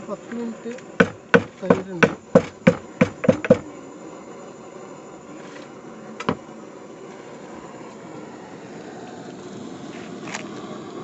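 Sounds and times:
pestle striking stone mortar: 1.0s - 3.6s.

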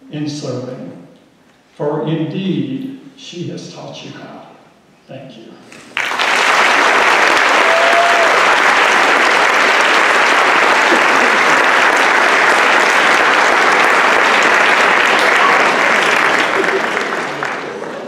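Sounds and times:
audience applauding: 5.9s - 18.0s.

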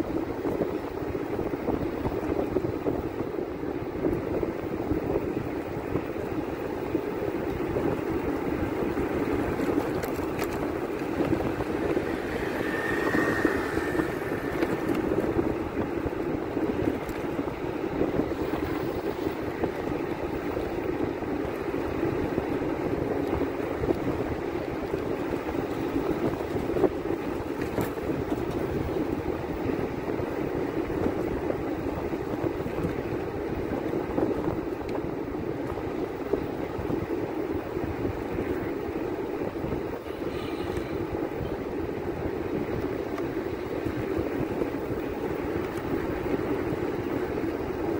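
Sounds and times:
rushing wind: 0.0s - 47.9s
vehicle engine and road noise: 0.0s - 47.9s.

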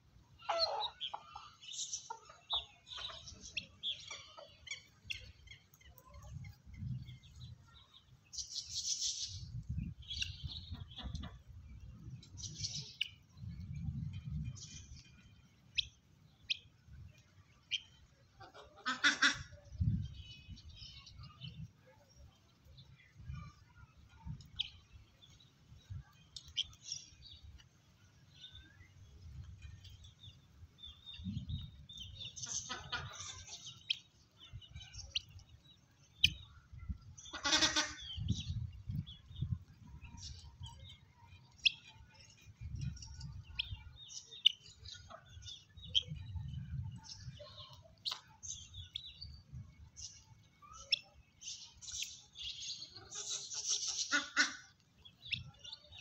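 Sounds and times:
fowl chirping: 0.4s - 5.4s, 17.7s - 19.6s, 32.2s - 34.1s, 37.2s - 38.5s, 50.1s - 56.0s
harsh fowl calls: 37.3s - 38.1s, 53.9s - 54.7s.

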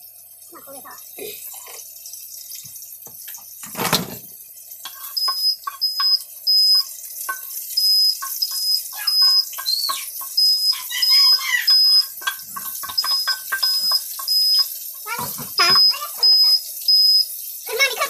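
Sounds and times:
hot oil sizzling in a skillet: 0.0s - 18.0s
smoke detector beeping: 5.1s - 14.7s, 15.6s - 17.3s.

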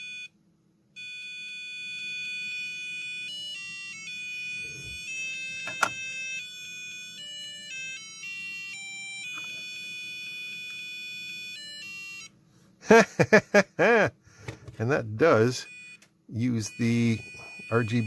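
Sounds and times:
buzzer playing beepy tune: 0.0s - 0.3s, 1.0s - 12.3s, 15.5s - 18.0s.

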